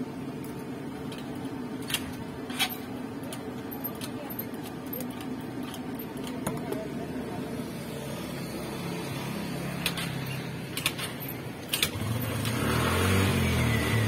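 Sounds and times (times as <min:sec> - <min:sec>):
street background noise: 0:00.0 - 0:14.0
vehicle engine humming: 0:00.0 - 0:14.0
utensils clicking on wooden counter: 0:09.8 - 0:12.6.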